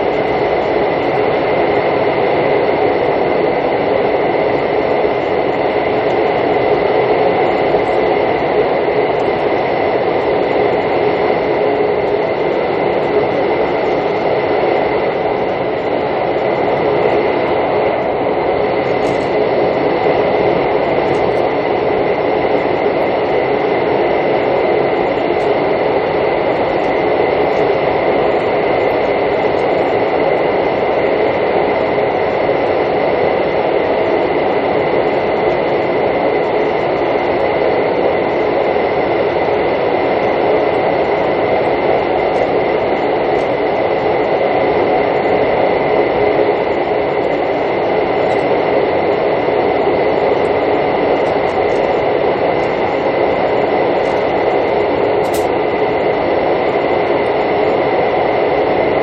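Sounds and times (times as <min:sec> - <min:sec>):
train wheels rumbling on rail: 0:53.8 - 0:56.2.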